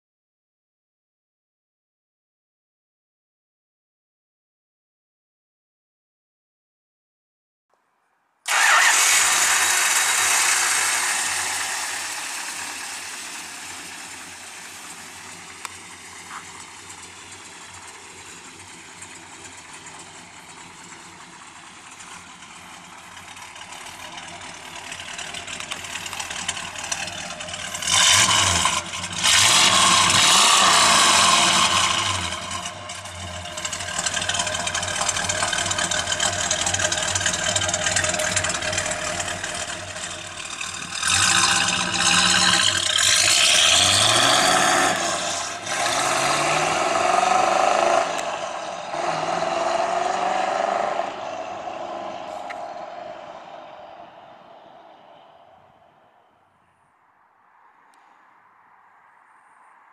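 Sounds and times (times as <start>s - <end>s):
car engine revving: 8.5s - 56.4s
car engine starting: 8.5s - 56.4s
car engine idling: 8.5s - 56.9s.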